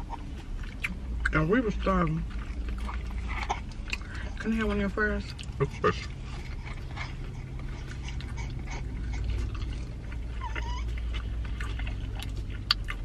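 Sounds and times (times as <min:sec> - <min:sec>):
chewing and food-handling clicks: 0:00.0 - 0:13.0
steady low hum: 0:00.0 - 0:13.0
infant whimpering coo: 0:10.4 - 0:11.0.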